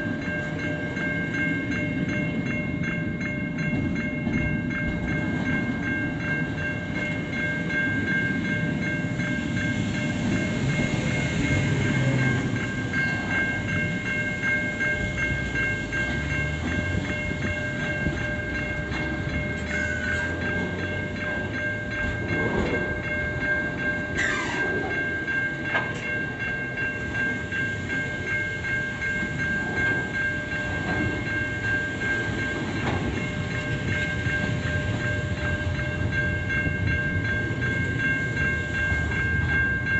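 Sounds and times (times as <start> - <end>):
train wheels rumbling on rail: 0.0 - 39.9
falling squeal: 24.2 - 24.8.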